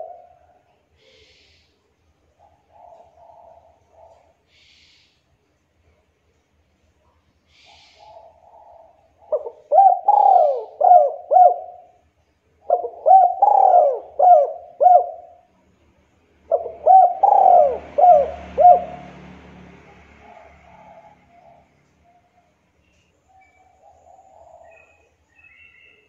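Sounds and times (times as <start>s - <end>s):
dove cooing: 0.0s - 1.3s, 2.4s - 4.4s, 7.6s - 12.0s, 12.6s - 15.5s, 16.5s - 19.4s, 20.0s - 22.5s, 23.4s - 26.0s.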